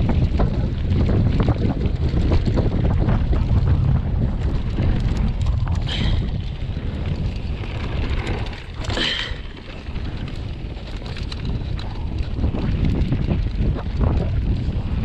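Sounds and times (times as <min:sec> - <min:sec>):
bike rattling clicks: 0:00.0 - 0:15.0
bike tyre rumble: 0:00.0 - 0:15.0
wind buffeting microphone: 0:00.0 - 0:15.0.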